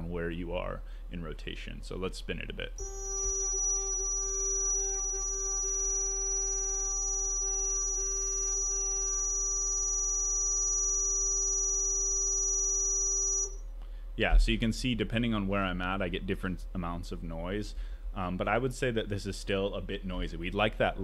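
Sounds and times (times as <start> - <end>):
electric motor whining: 2.8 - 13.6.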